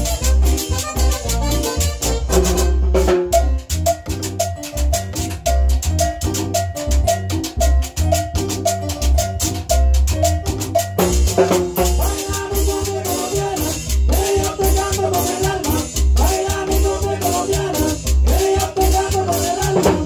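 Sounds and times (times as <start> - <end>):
band playing latin dance music: 0.0 - 20.0.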